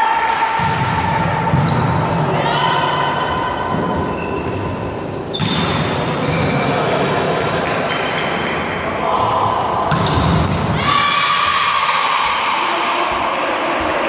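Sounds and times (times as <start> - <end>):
volleyball smacks and thuds: 5.4 - 5.9.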